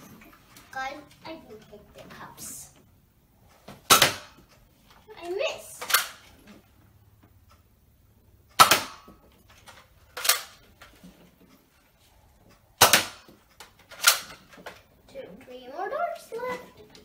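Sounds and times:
toy foam-dart blaster firing: 3.9 - 4.5, 8.6 - 10.6, 12.8 - 14.4.

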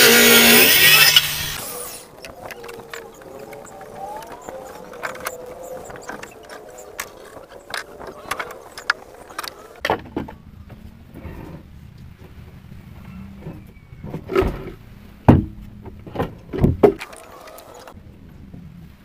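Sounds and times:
low hum: 0.0 - 19.0
wooden timbers knocking: 13.4 - 17.9.

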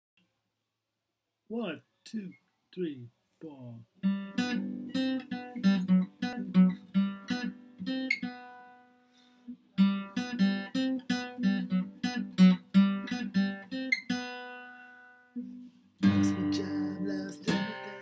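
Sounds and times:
acoustic guitar strumming: 4.0 - 18.0.

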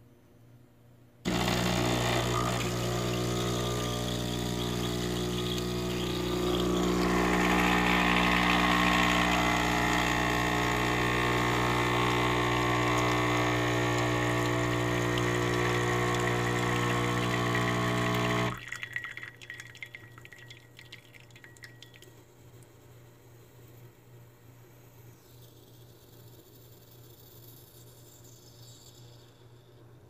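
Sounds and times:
espresso machine pump buzzing: 1.3 - 18.6.

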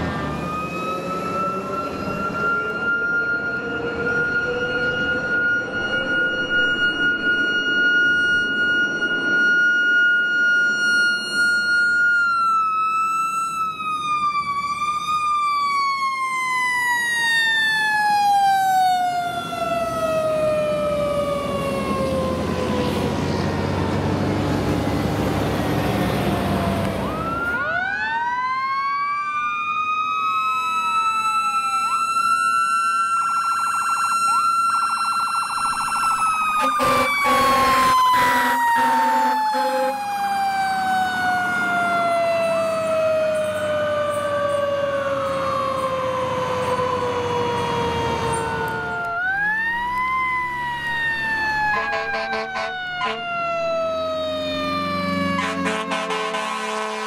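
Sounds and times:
fire truck sirens wailing: 0.0 - 57.0
low steady horn blasts: 36.5 - 40.1, 51.7 - 53.3, 55.3 - 57.0.

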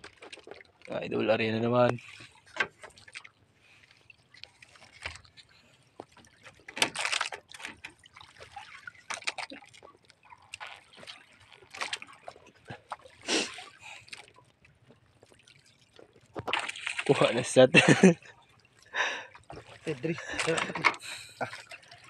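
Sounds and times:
water splashing and sloshing: 0.0 - 22.0.

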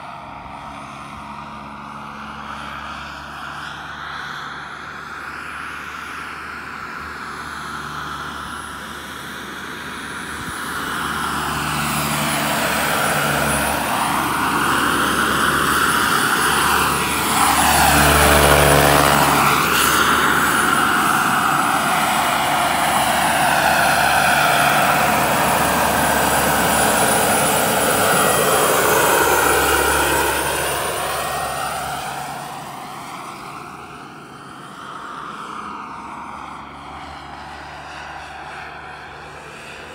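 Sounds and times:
helicopter rotor noise: 0.0 - 39.9
model helicopter turbine whine: 0.0 - 39.9.

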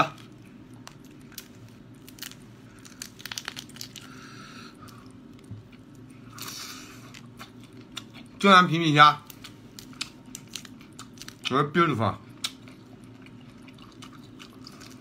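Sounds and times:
person chewing: 0.0 - 8.4, 9.3 - 11.5, 12.2 - 15.0.

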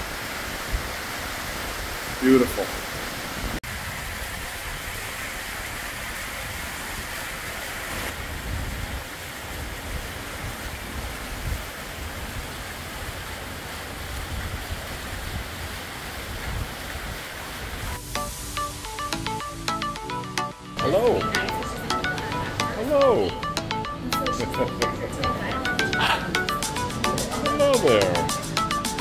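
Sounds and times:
gusty wind buffeting microphone: 8.1 - 12.6.

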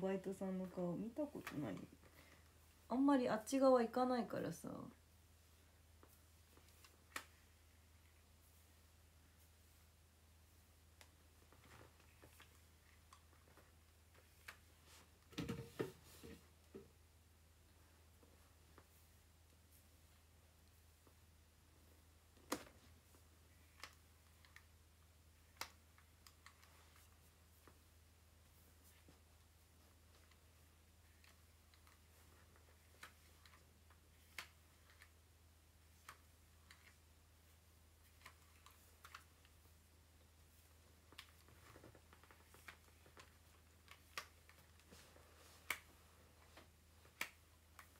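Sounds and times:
hair straightener knocks and rustles: 15.3 - 16.4.

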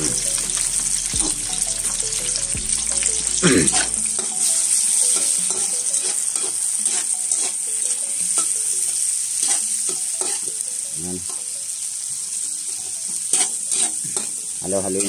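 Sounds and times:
food sizzling in oil: 0.0 - 15.0
utensil scraping a wok: 3.6 - 10.6, 12.7 - 15.0.

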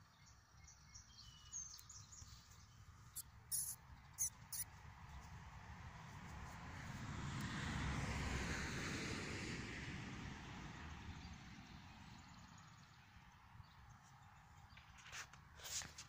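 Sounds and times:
vehicle passing by: 4.9 - 12.9.

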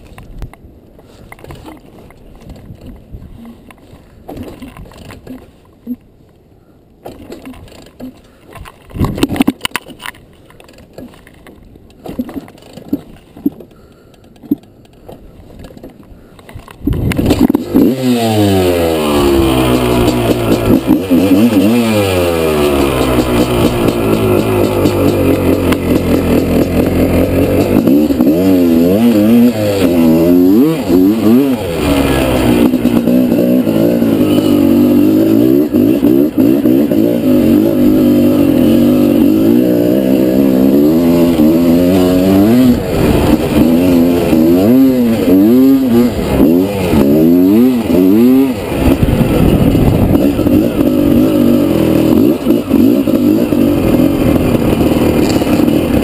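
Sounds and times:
two-stroke motorcycle engine revving: 16.9 - 56.0.

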